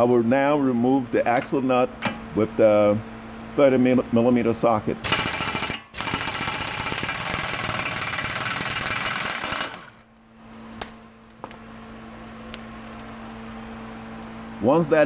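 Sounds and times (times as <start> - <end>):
pneumatic impact wrench hammering: 5.0 - 10.1.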